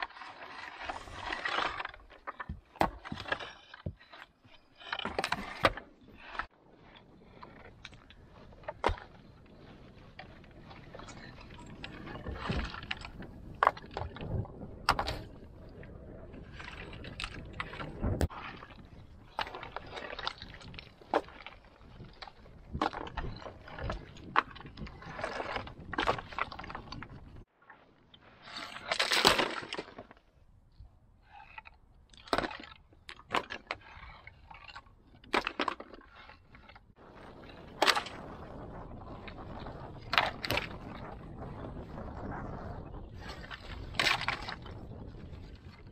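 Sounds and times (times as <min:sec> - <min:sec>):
stone slabs knocking and scraping: 0:00.0 - 0:06.5
stones scraping and clacking: 0:00.0 - 0:15.4, 0:16.5 - 0:27.5, 0:31.2 - 0:45.9.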